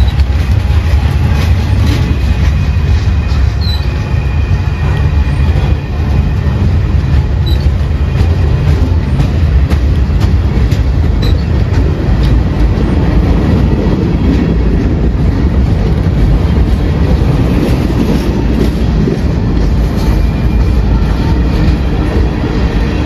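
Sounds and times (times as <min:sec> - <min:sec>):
freight train wheels rumbling: 0:00.0 - 0:23.0
wheels clacking over rail joints: 0:00.0 - 0:23.0.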